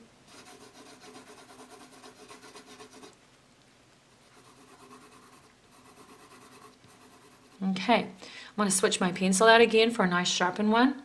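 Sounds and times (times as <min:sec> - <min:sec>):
pencil scratching on paper: 0:00.3 - 0:03.1, 0:04.3 - 0:07.7.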